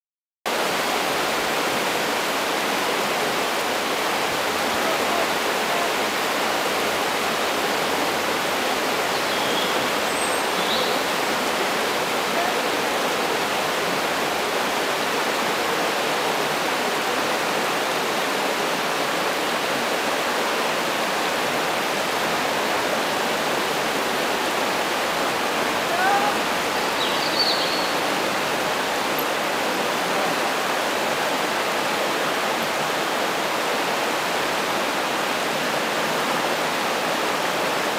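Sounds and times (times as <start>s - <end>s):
water rushing over stones: 0.5s - 37.9s
faint high chirps: 26.8s - 28.1s.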